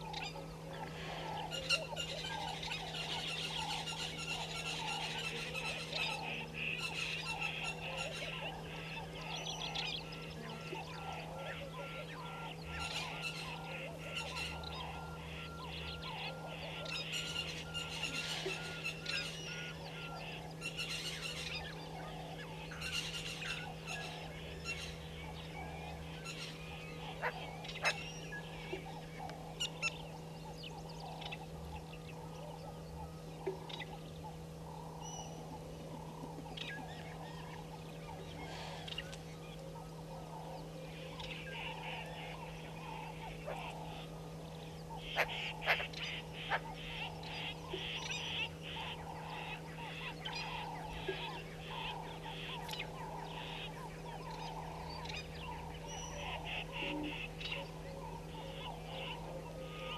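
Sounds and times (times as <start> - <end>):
geese and goslings peeping: 0.0 - 59.9
steady low hum: 0.0 - 59.9.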